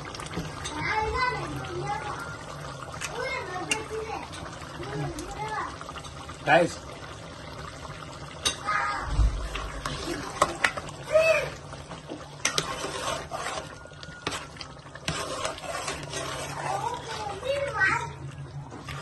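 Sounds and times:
low bubbling of cooking food: 0.0 - 19.0
dull low thump: 9.0 - 9.5
spoon scraping and knocking pan: 12.1 - 17.4.

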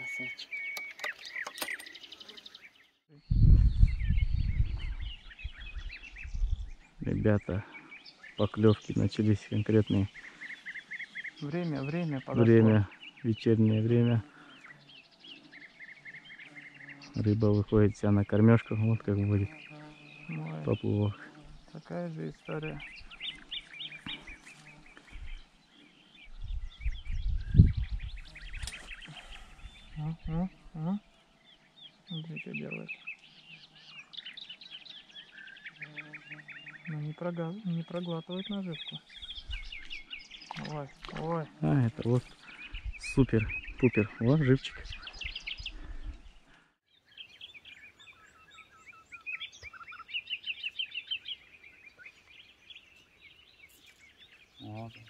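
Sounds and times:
small birds chirping: 0.0 - 55.0
low rumble on microphone: 3.1 - 7.4, 26.2 - 30.9.

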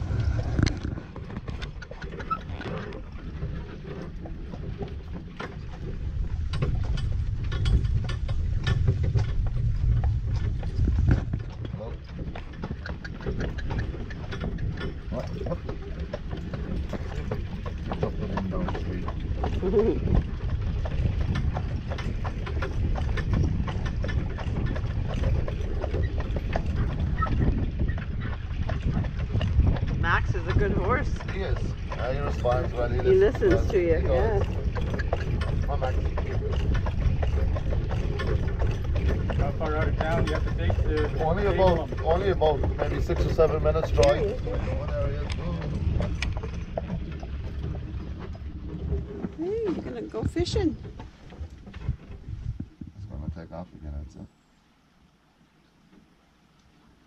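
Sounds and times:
cart wheels rumbling: 0.0 - 54.2
hooves clip-clopping on pavement: 0.0 - 54.3.

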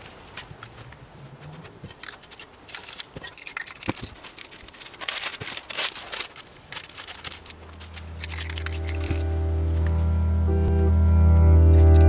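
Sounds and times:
spray cans clicking and knocking: 1.8 - 6.1, 6.7 - 9.2
magazine page rustling: 2.0 - 10.0
short spray hiss: 2.2 - 3.1.

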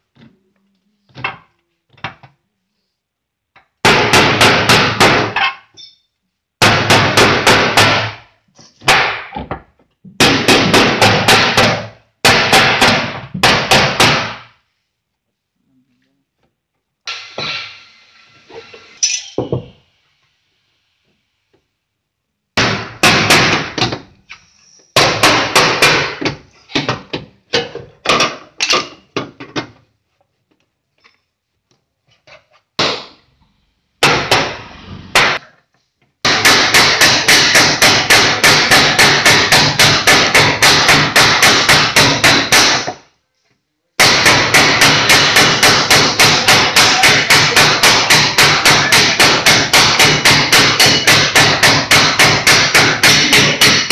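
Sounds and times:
hammer tapping metal: 44.0 - 53.9.

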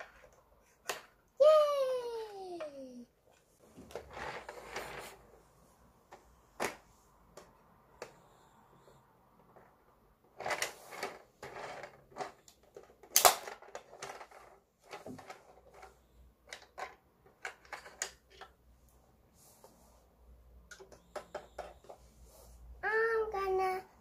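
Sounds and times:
plastic parts clicking and clacking: 10.3 - 18.6.

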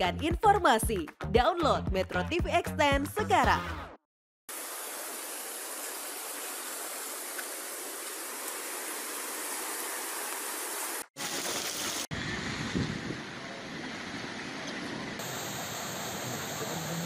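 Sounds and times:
floodwater rushing: 4.5 - 12.6, 15.2 - 17.0.

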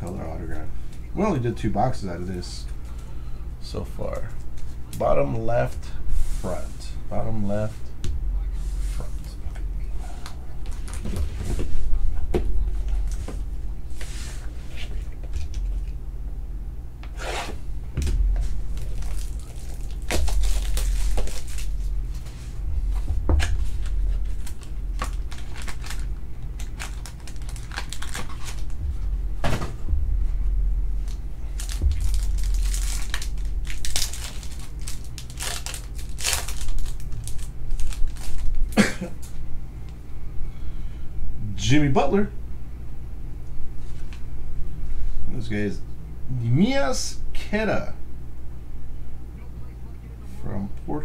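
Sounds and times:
packaging tearing and crinkling: 18.6 - 21.9, 23.4 - 28.8, 31.0 - 38.8.

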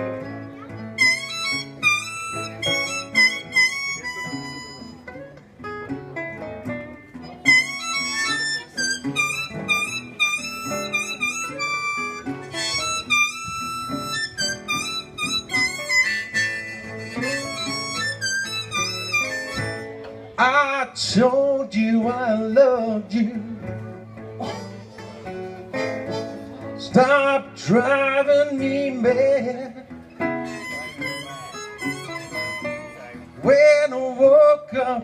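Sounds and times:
blues harmonica solo: 0.0 - 5.4, 7.2 - 20.1, 24.4 - 27.2, 30.1 - 33.5
acoustic guitars playing: 0.0 - 35.0.

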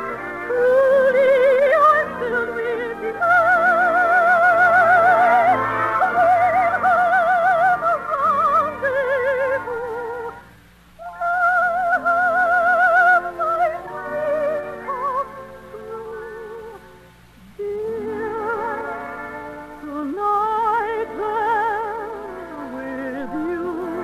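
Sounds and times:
operetta singing with orchestra: 0.0 - 24.0.

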